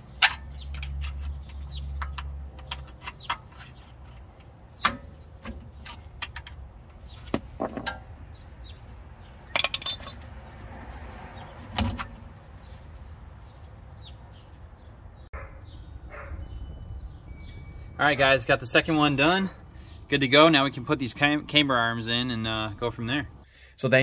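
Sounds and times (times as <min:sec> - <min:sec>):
ringing metal clink: 0:09.5 - 0:10.3.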